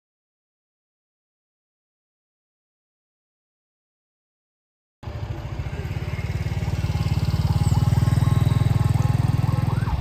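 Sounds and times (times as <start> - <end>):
small motorcycle engine passing: 5.0 - 10.0
faint siren wailing: 5.4 - 10.0.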